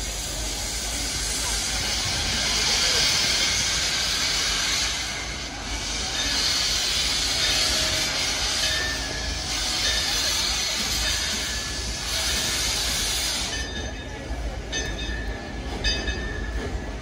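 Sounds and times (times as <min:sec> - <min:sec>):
steam hissing from locomotive: 0:00.0 - 0:17.0.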